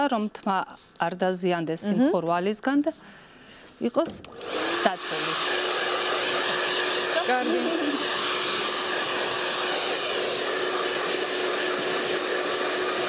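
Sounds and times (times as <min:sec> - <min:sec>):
hair dryer running: 0:04.0 - 0:13.0.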